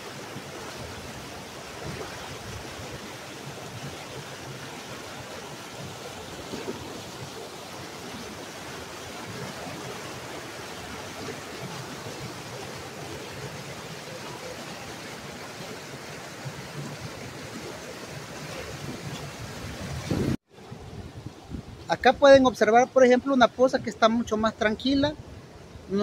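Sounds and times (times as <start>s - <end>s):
river rapids rushing over rocks: 0.0s - 20.3s.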